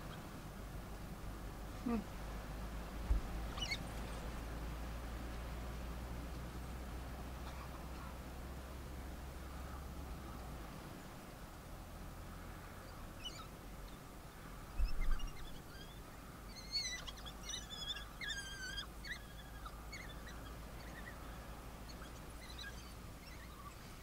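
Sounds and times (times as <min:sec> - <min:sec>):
wild dogs squeaking and chirping: 0:03.4 - 0:04.4, 0:07.4 - 0:08.2, 0:12.8 - 0:14.0, 0:14.8 - 0:24.0.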